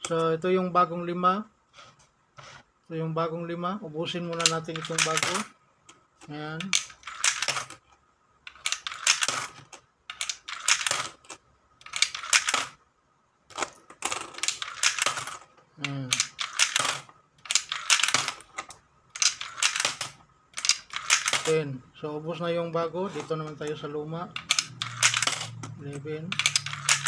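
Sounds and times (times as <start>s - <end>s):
coins clattering through mechanism: 4.4s - 5.5s, 6.7s - 7.8s, 8.5s - 12.8s, 13.5s - 21.6s, 24.4s - 25.7s, 26.3s - 27.0s.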